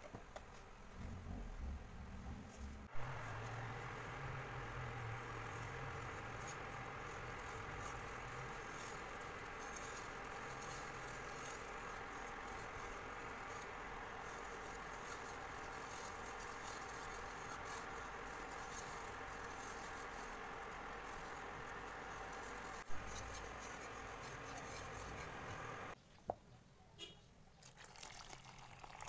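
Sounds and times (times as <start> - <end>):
steady faint hum: 0.0 - 27.0
whisk scraping a pan: 2.8 - 26.0.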